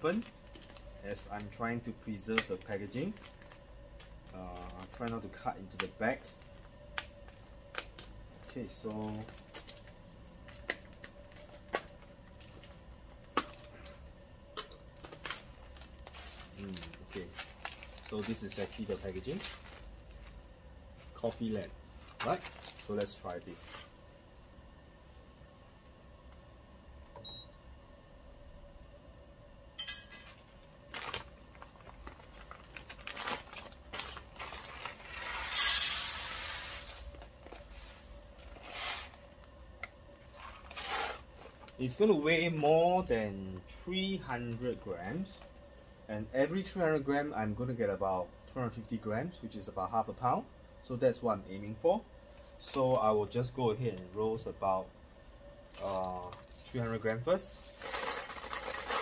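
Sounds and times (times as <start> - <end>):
plastic bag crinkling: 0.0 - 1.6, 2.2 - 24.0, 30.8 - 39.3, 55.7 - 59.0
faint steady hum: 0.0 - 59.0
coffee beans pouring: 32.6 - 39.2, 57.6 - 59.0
bag being cut open: 57.6 - 59.0.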